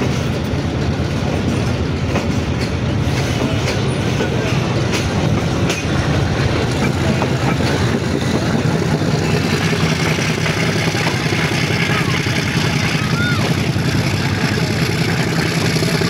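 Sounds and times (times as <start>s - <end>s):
train rumbling on rails: 0.0s - 16.0s
wheels clicking over rail joints: 0.0s - 16.0s
diesel engine drone: 6.2s - 16.0s.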